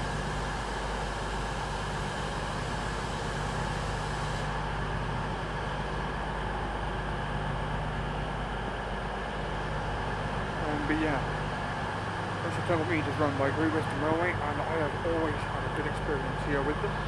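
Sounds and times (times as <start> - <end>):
diesel train engine idling: 0.0 - 17.0.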